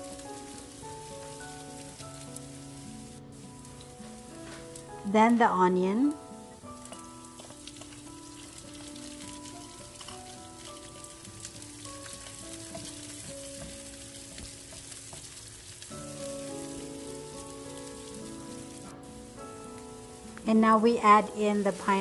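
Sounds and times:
onions sizzling in hot oil: 0.0s - 22.0s
wooden spatula stirring: 6.8s - 19.5s.

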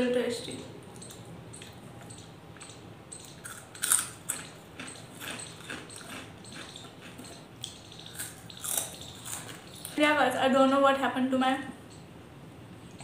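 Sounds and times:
chewing soft food: 1.0s - 10.0s.

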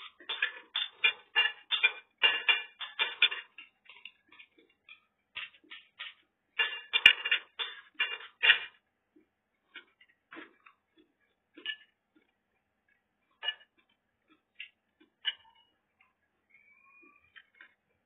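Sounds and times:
cutlery clinking on ceramic plates: 0.0s - 8.8s, 13.4s - 14.0s, 14.6s - 15.7s.

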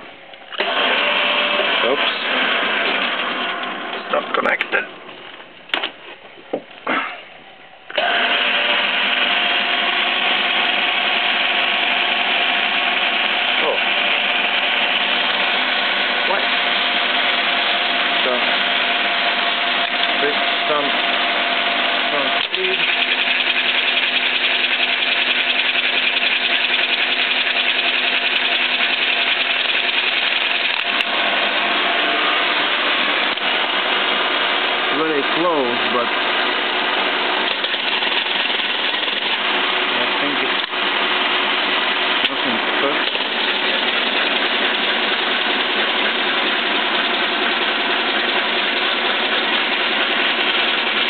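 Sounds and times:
milling machine gear whir: 0.4s - 4.5s, 7.9s - 51.0s
man talking: 4.0s - 5.0s, 13.6s - 13.9s, 16.2s - 16.6s, 18.2s - 18.6s, 20.1s - 21.0s, 22.0s - 22.8s, 34.9s - 36.2s, 39.9s - 40.6s, 42.2s - 43.1s.

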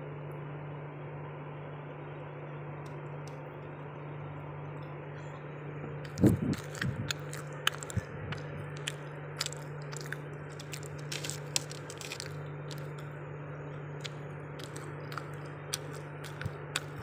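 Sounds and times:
low hum: 0.0s - 17.0s
biting cake: 6.0s - 13.2s, 13.8s - 17.0s
chewing and lip smacking: 6.0s - 13.2s, 13.9s - 17.0s.

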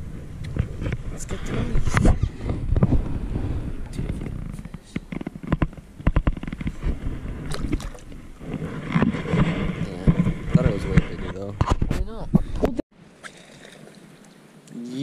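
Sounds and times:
sharp knocks and clicks: 4.1s - 6.8s
water sloshing: 6.8s - 11.4s, 13.0s - 14.8s
fish splashing into water: 13.2s - 14.3s.

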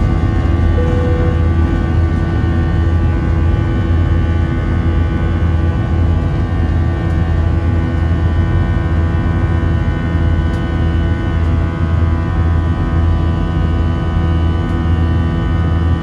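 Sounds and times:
engine fan buzzsaw tone: 0.0s - 7.9s.

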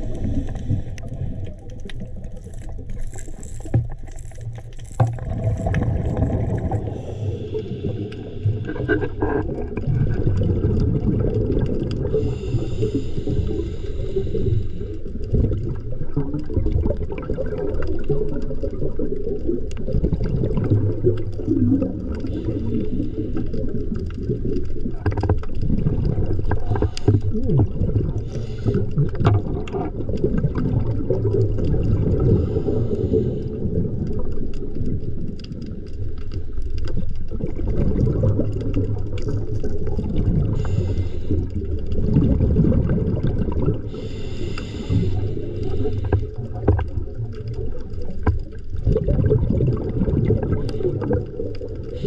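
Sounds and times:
underwater rumble and bubbling: 0.0s - 52.0s
small clicks: 0.4s - 5.9s.

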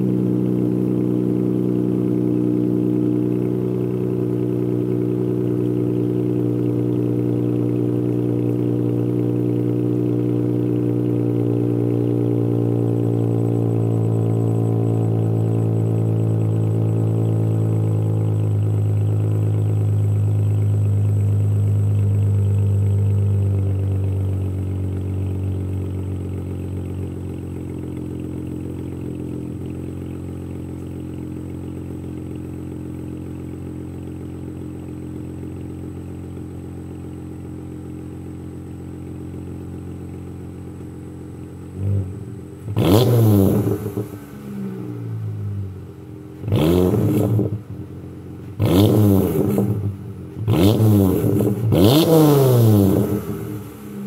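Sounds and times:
car exhaust idling deeply: 0.0s - 54.0s
engine revving: 41.7s - 45.7s, 46.3s - 54.0s.

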